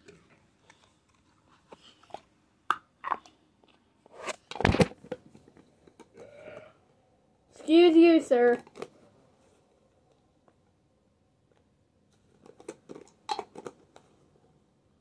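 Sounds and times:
plastic tubs clicking and crackling: 4.4s - 6.7s, 8.3s - 9.1s, 12.1s - 14.2s.

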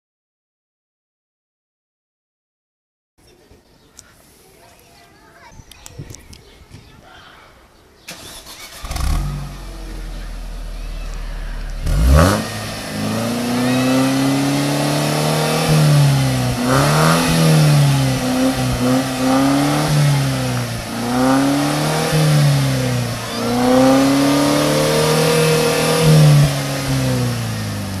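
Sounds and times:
car engine revving: 8.1s - 28.0s.

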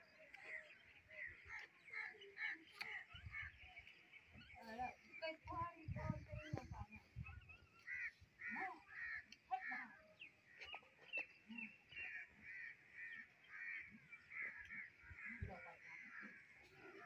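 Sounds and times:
crows cawing: 7.8s - 10.0s.

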